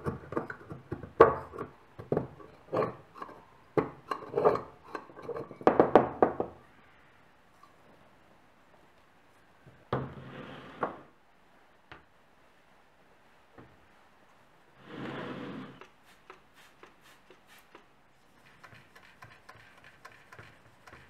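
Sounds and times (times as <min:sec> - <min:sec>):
screwdriver scraping metal canister: 0:18.4 - 0:21.0.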